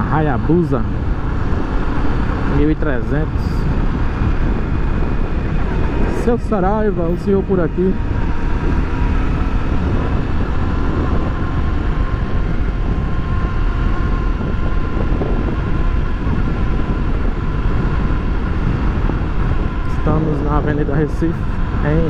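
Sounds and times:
motorcycle engine running: 0.0 - 22.0
wind rushing over microphone: 0.0 - 22.0.

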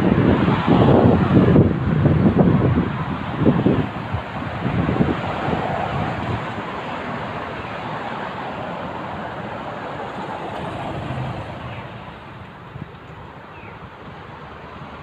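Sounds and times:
car road noise: 0.0 - 15.0.

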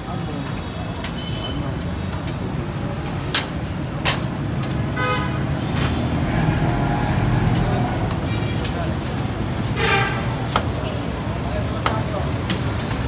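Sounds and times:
traffic rumble: 0.0 - 13.0
vehicle horn toot: 5.0 - 5.8.

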